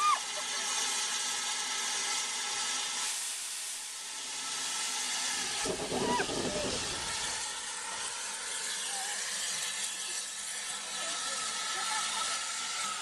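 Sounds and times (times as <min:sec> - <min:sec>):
steam hissing: 0:00.0 - 0:13.0
short rumble: 0:05.6 - 0:07.4.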